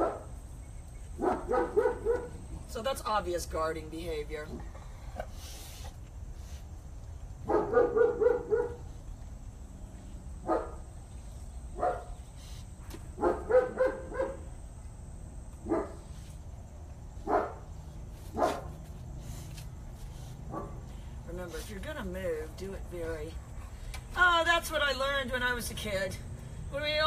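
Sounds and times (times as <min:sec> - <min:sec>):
dog barking: 0:00.0 - 0:00.3, 0:01.2 - 0:02.4, 0:07.5 - 0:08.9, 0:10.4 - 0:10.8, 0:11.8 - 0:12.2, 0:13.2 - 0:14.5, 0:15.6 - 0:16.0, 0:17.2 - 0:17.7, 0:18.3 - 0:18.7, 0:20.5 - 0:20.8.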